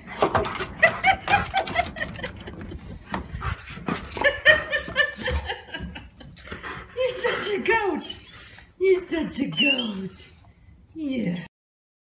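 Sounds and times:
person laughing: 0.3s - 2.9s, 4.1s - 6.5s.

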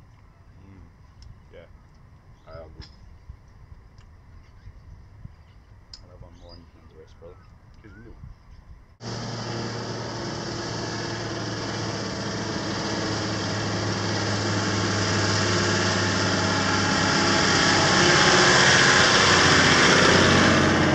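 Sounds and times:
four-wheel drive approaching: 9.0s - 20.9s.

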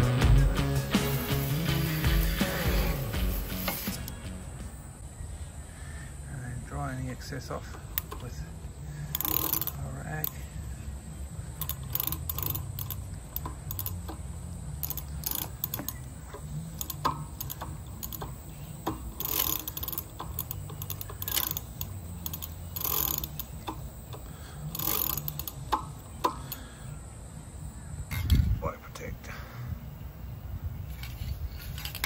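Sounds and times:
freewheel pawls clicking: 7.6s - 26.7s
bike chain running over sprockets: 7.9s - 10.6s, 11.4s - 25.8s, 30.9s - 32.0s.

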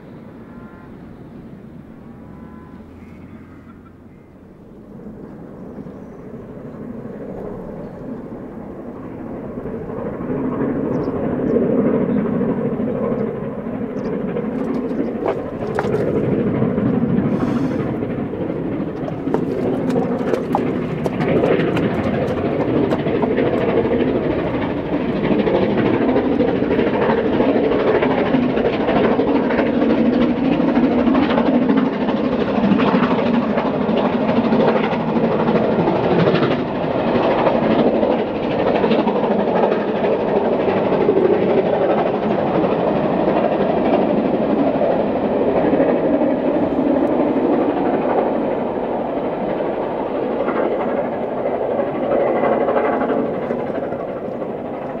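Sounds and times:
steam locomotive chuffing: 14.2s - 29.2s
train coaches clattering on rails: 14.4s - 25.3s, 38.4s - 55.0s.

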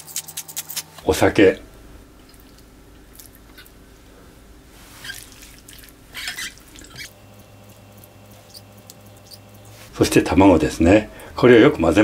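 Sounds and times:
wet squelches of stirring: 0.0s - 1.1s, 2.2s - 4.1s, 4.7s - 10.3s.

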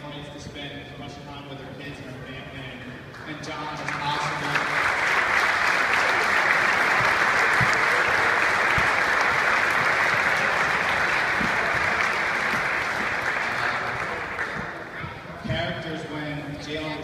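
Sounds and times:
crowd applauding: 3.8s - 15.0s.

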